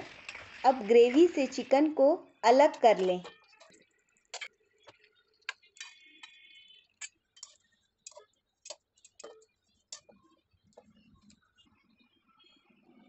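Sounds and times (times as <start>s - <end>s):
spatula clicking on steel bowl: 7.0s - 10.1s.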